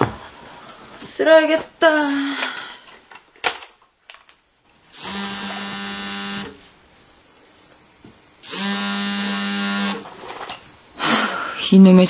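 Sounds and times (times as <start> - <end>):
phone vibrating on glass: 5.0 - 6.5, 8.5 - 10.0.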